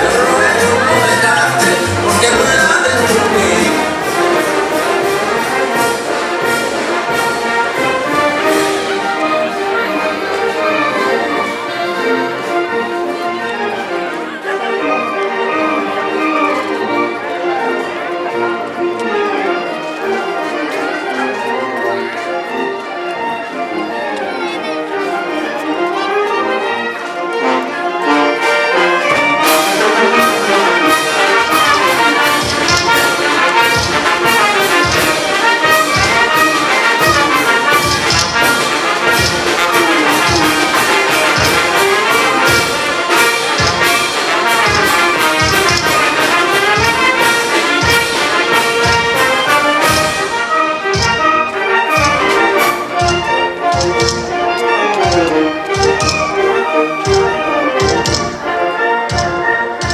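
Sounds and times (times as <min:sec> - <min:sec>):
percussion beat: 0:00.0 - 0:09.0, 0:29.5 - 0:58.5, 0:59.1 - 0:59.9
brass band playing dance tune: 0:00.0 - 0:22.7, 0:25.7 - 0:59.9.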